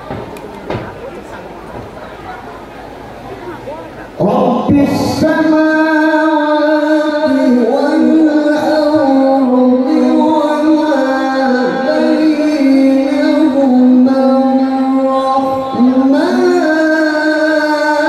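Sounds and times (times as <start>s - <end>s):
man reciting melodically over loudspeakers: 4.1s - 18.0s.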